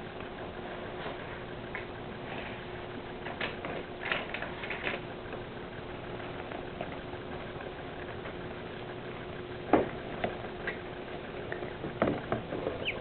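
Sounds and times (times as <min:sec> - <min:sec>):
ducklings peeping: 0:12.7 - 0:13.0.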